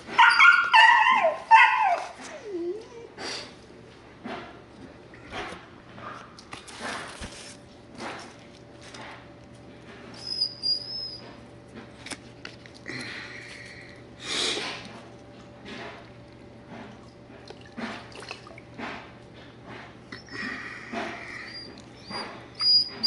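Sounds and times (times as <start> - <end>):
dog yelp: 0.1 - 2.6
dog whining: 0.1 - 3.5, 10.2 - 11.4, 20.1 - 23.0.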